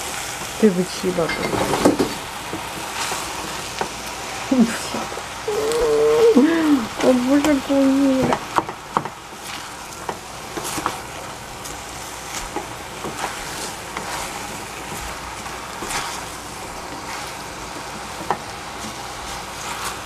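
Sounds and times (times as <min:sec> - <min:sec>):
food sizzling in a pan: 0:00.0 - 0:20.0
spatula scraping and knocking pan: 0:07.3 - 0:20.0.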